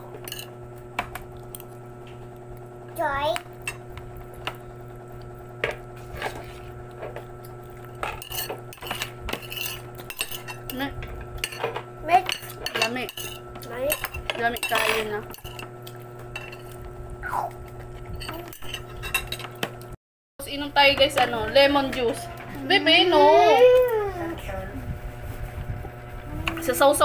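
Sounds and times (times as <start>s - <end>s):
metal spoon scraping a plate: 8.1s - 10.8s.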